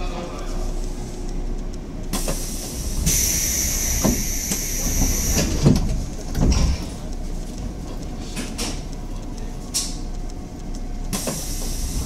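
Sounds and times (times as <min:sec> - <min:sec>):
train compressed air hiss: 0:02.1 - 0:05.7, 0:11.1 - 0:12.0.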